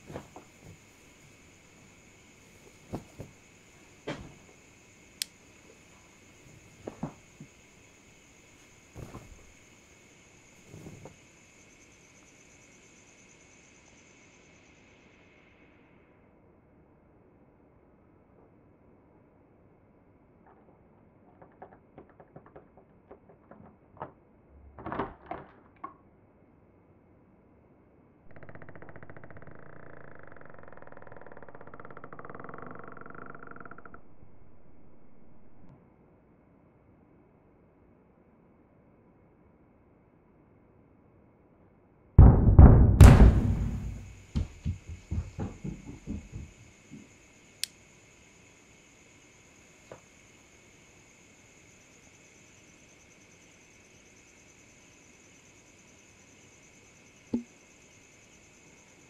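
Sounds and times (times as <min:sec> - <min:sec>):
deep boom impact hit: 0:42.2 - 0:44.2
soft thumps: 0:42.2 - 0:47.0.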